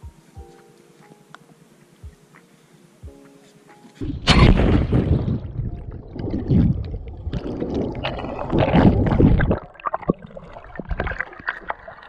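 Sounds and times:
muffled underwater water rushing: 0:04.0 - 0:12.0.

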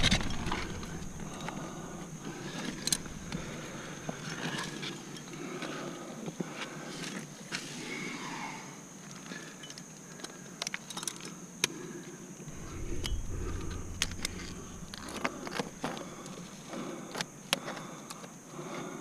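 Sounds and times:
low rumble: 0:00.0 - 0:04.2, 0:12.5 - 0:16.6.

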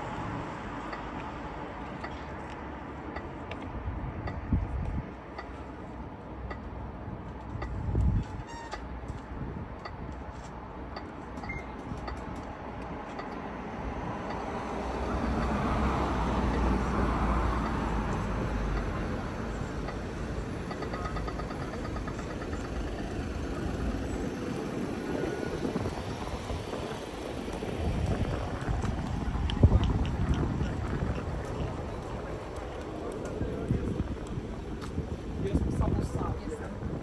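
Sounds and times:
street noise: 0:00.0 - 0:37.0.

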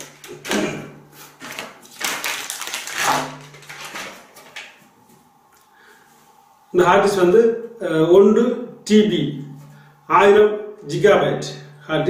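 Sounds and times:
plastic packaging crinkling: 0:00.0 - 0:00.6, 0:01.2 - 0:05.0.

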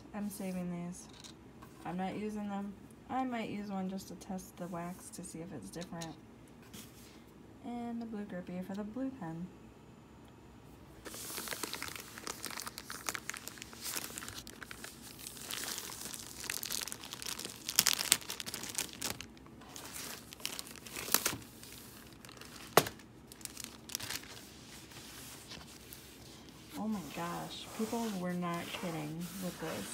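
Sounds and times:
plastic wrap crinkling: 0:11.1 - 0:29.9.

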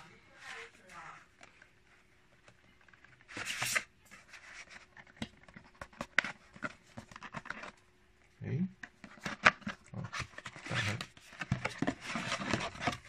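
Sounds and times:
cardboard box rustling scrape: 0:10.0 - 0:13.0.

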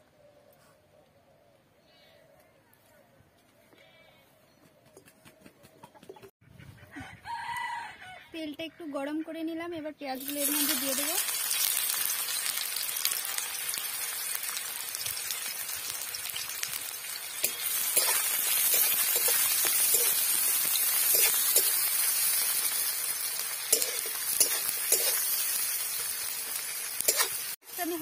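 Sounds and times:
onions sizzling in hot oil: 0:10.2 - 0:28.0
spatula clinking against metal: 0:17.4 - 0:20.3, 0:23.7 - 0:25.2.

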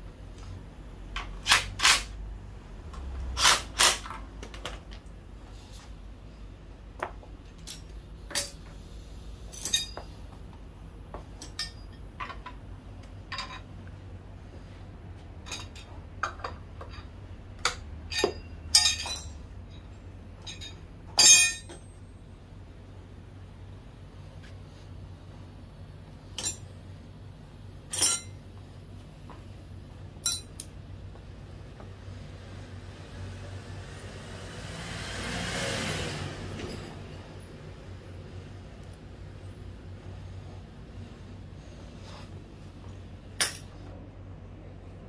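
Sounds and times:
metal tools clinking: 0:07.5 - 0:08.7, 0:09.5 - 0:10.2, 0:11.4 - 0:12.6, 0:13.3 - 0:13.7, 0:15.4 - 0:17.2, 0:18.0 - 0:21.9, 0:26.4 - 0:26.7, 0:27.9 - 0:28.4, 0:30.2 - 0:30.7, 0:43.4 - 0:43.7.

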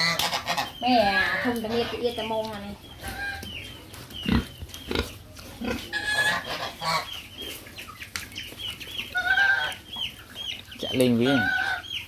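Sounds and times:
birds peeping: 0:00.0 - 0:12.0.

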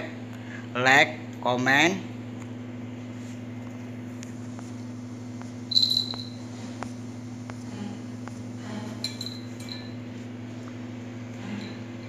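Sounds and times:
steady low hum: 0:00.0 - 0:12.0
clinks against metal bowl: 0:09.0 - 0:10.0.

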